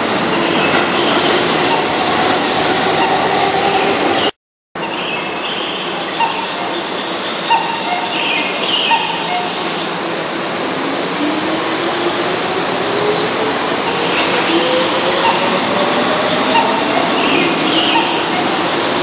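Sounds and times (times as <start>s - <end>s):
train wheels rumbling: 8.4s - 19.0s.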